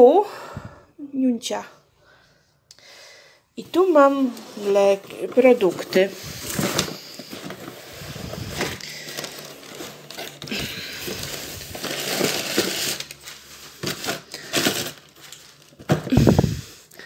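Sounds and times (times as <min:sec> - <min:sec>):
cardboard box rustling and scraping: 0:04.0 - 0:16.6.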